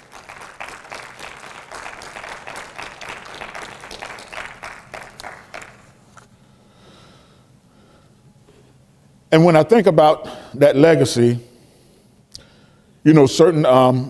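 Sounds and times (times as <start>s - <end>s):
congregation clapping: 0.0s - 6.3s.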